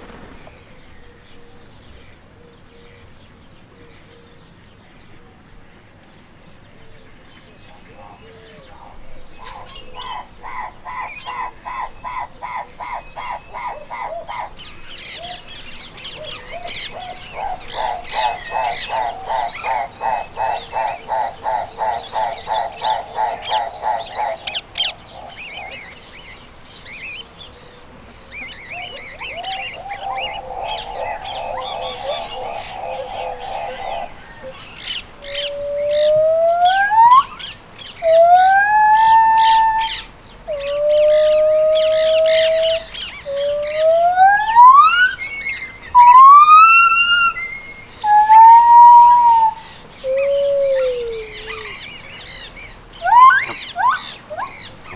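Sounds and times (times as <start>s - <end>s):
small birds chirping: 0.0s - 54.9s
rapid pulsing croaking call: 7.8s - 27.3s, 28.6s - 54.9s
gibbons whooping: 16.1s - 26.0s, 35.2s - 54.9s.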